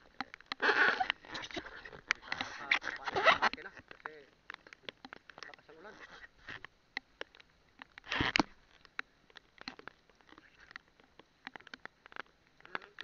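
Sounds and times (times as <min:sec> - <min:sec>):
raindrops tapping: 0:00.0 - 0:13.0.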